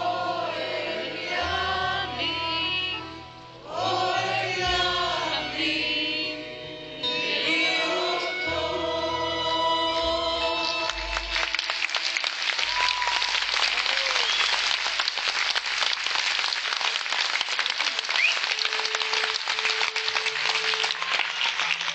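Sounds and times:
crowd applauding: 10.9 - 21.9.

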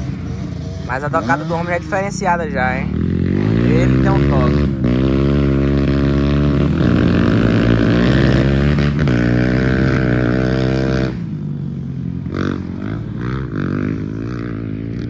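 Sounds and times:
fainter engine revs: 0.0 - 11.4
dirt bike engine revving: 0.0 - 15.0.

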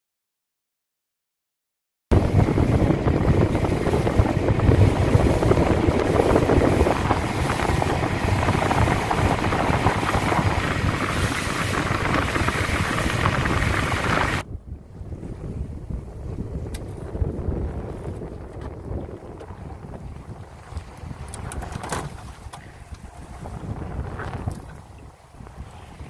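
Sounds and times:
boat engine drone: 2.1 - 14.4, 17.9 - 26.0
wind buffeting microphone: 2.1 - 26.0.

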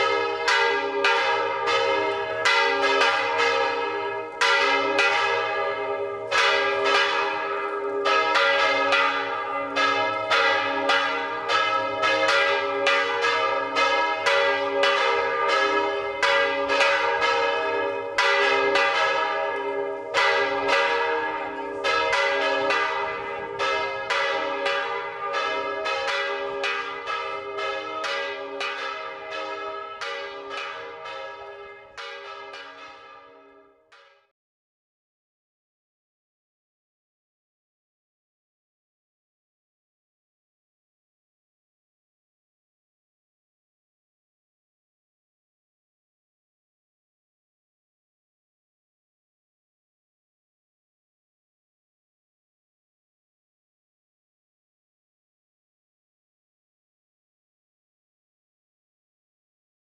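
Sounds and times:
church bells ringing: 0.0 - 34.3.

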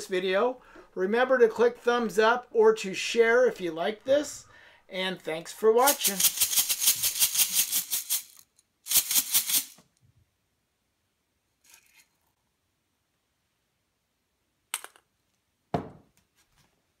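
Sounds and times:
popcorn kernels rattling in glass: 5.9 - 9.8
thump: 15.7 - 16.1.

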